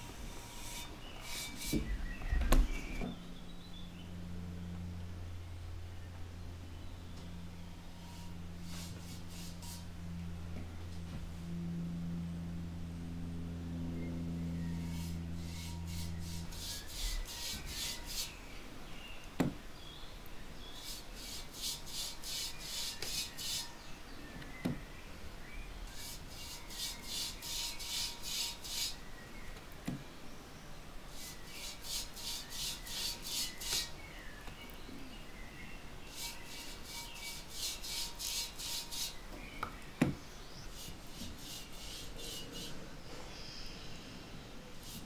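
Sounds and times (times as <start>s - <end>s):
low steady hum: 0.0s - 45.0s
bristle brush scrubbing clay: 8.0s - 9.8s, 14.9s - 18.4s, 20.8s - 23.7s, 26.0s - 29.0s, 31.1s - 33.9s, 36.1s - 39.2s, 40.7s - 42.8s.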